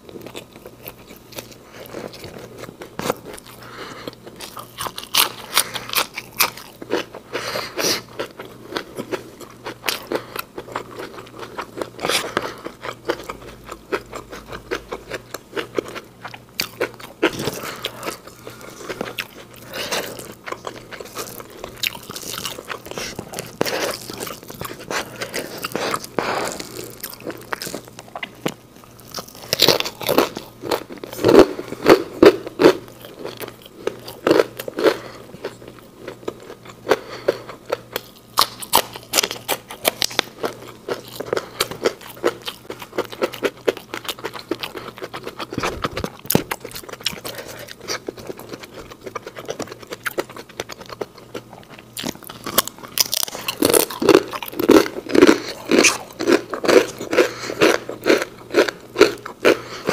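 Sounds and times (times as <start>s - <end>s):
wet chewing: 0.2s - 59.9s
crisp crunches: 16.6s - 35.6s.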